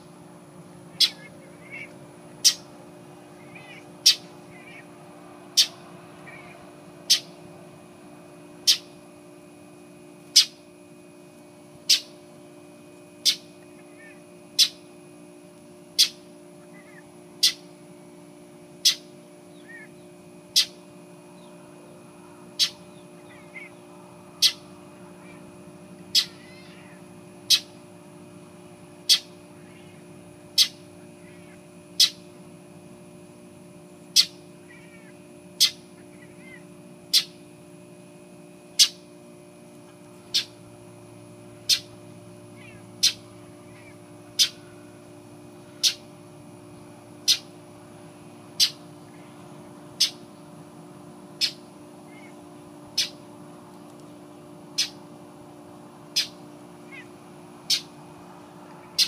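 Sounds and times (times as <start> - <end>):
bird harsh short calls: 1.0 - 2.7, 26.1 - 26.7.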